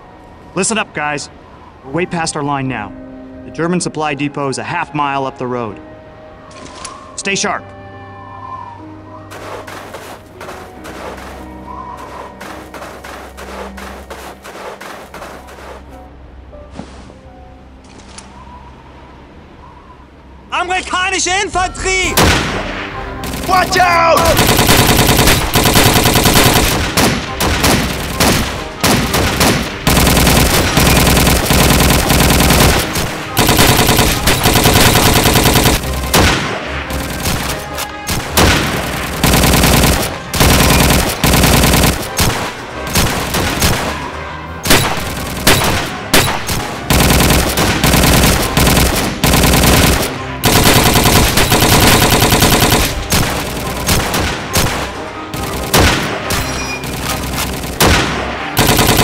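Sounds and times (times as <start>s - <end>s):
single gunshots: 22.1s - 44.1s, 44.7s - 55.0s, 55.6s - 59.0s
automatic gunfire bursts: 23.2s - 44.1s, 44.7s - 59.0s.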